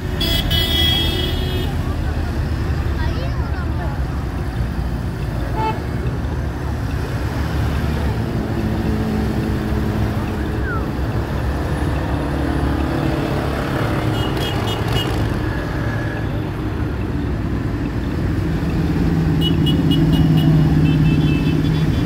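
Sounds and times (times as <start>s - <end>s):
traffic noise: 0.0s - 22.0s.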